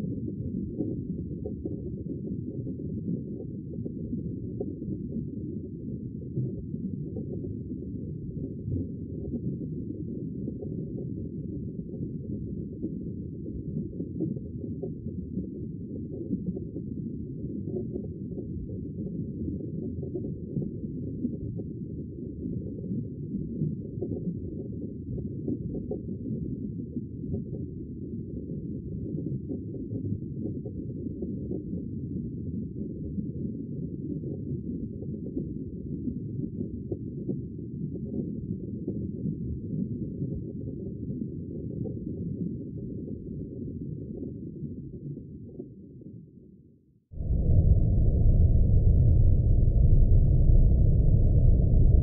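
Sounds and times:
muffled underwater rumble: 0.0 - 52.0
underwater ocean rumble: 47.2 - 52.0.

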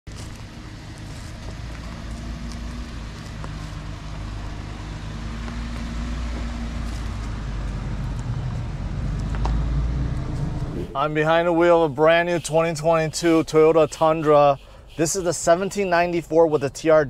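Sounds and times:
pickup truck engine running: 0.1 - 10.7.

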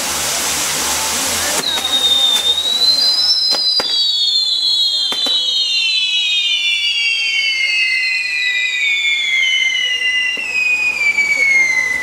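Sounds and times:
hiss of spark showers: 0.0 - 6.1
firework wheels whistling: 0.0 - 12.0.

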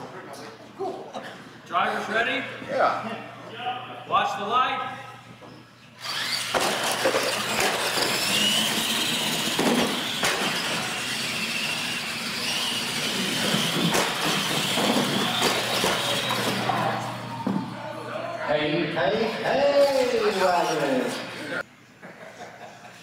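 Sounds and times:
electric motor whine: 6.0 - 17.7
wheel and drivetrain rush: 7.1 - 16.6.

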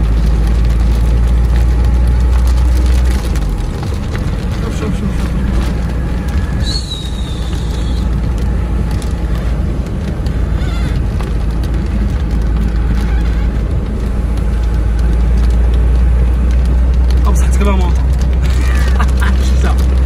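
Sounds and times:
car engine and road rumble: 0.0 - 20.0
rain on windscreen: 0.0 - 20.0
windscreen wipers sweeping: 0.0 - 20.0
wiper squeaks: 2.4 - 16.2.

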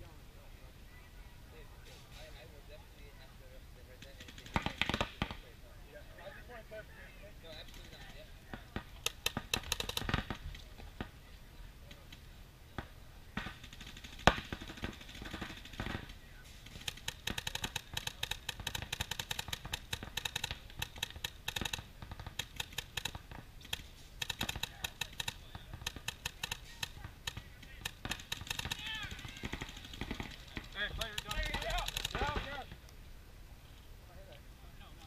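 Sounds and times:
paintball markers firing: 4.0 - 5.5, 7.7 - 11.1, 12.8 - 32.6
loud sharp crack: 13.4 - 32.6.

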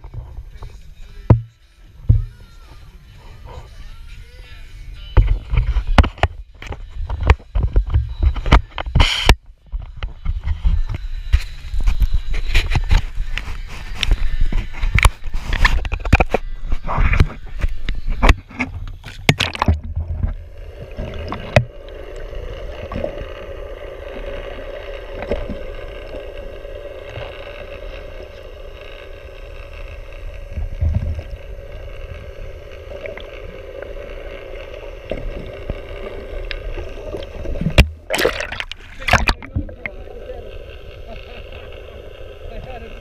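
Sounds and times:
boat engine idling underwater: 0.0 - 43.0
water splashing: 17.3 - 28.3, 30.5 - 42.9
muffled low rumble: 29.4 - 42.9.

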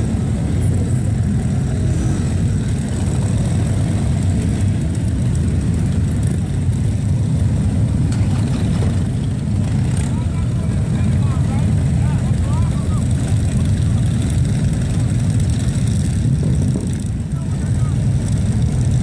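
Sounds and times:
motorcycles rolling slowly past: 0.0 - 19.0.

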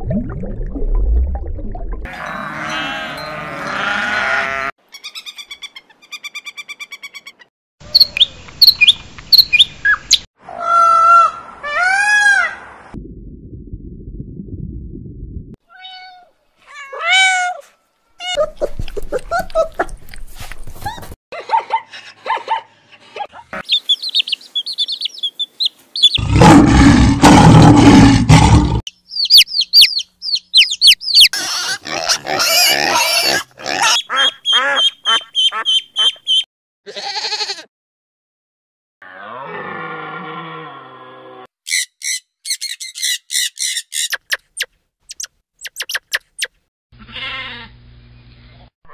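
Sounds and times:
rapid chirping and twittering: 23.6 - 26.2, 28.9 - 31.3
loud harsh animal cry: 31.3 - 34.7, 47.0 - 47.8
whistled gliding bird calls: 34.4 - 36.4.

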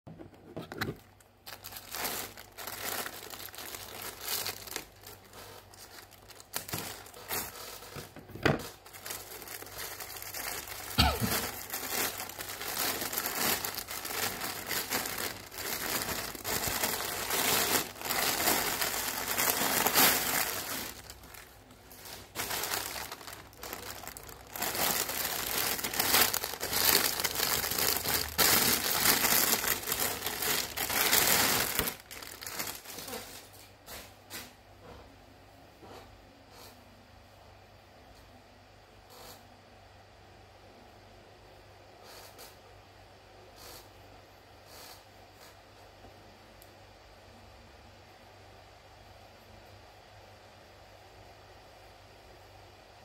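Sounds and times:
plastic packaging crinkling: 0.6 - 34.1.

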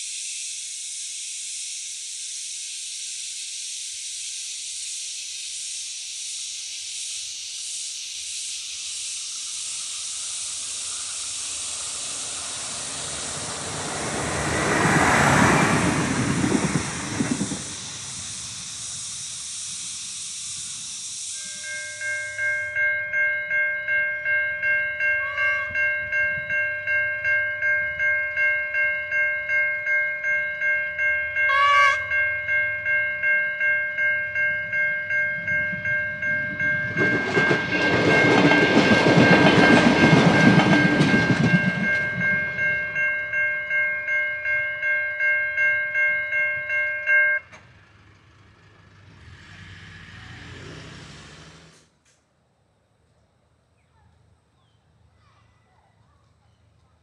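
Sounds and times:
railcar passing: 0.0 - 52.7
level crossing bells ringing: 21.4 - 47.6.

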